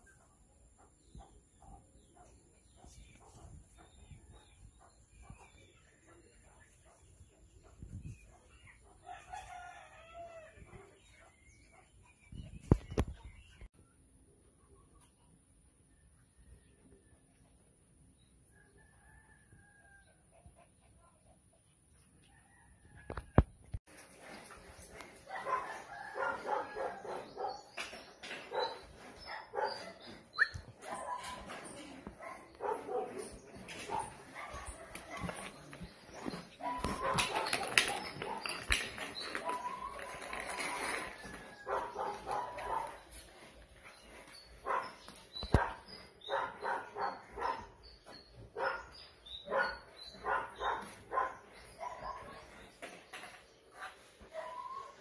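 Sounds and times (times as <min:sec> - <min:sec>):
dog barking and yipping: 0:25.2 - 0:43.1, 0:44.6 - 0:47.7, 0:48.6 - 0:52.5.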